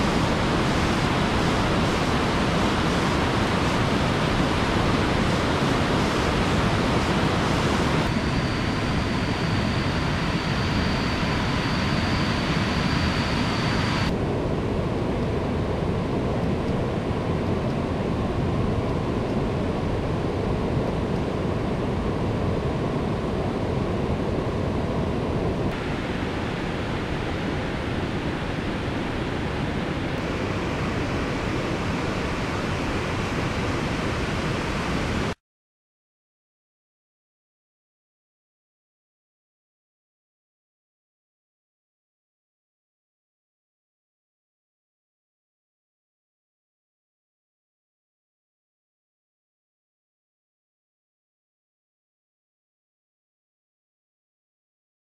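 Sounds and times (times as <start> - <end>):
thin high whine: 0.0 - 16.8
rushing river and waterfall: 25.8 - 35.3.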